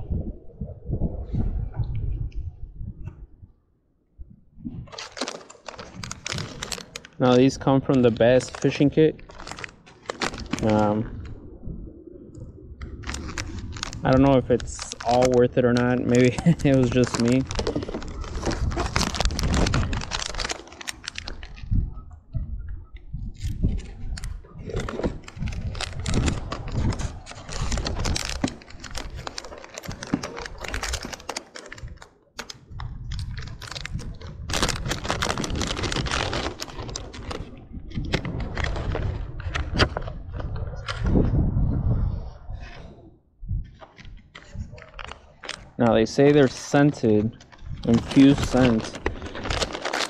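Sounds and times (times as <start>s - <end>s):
plastic package crinkling: 4.9s - 11.3s, 12.8s - 21.7s, 23.7s - 39.1s, 44.4s - 50.0s.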